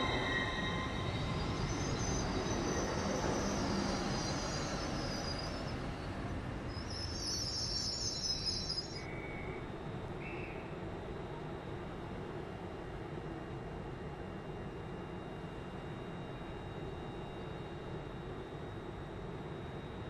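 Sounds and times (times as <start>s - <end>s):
train wheels rumbling on rails: 0.0s - 8.7s.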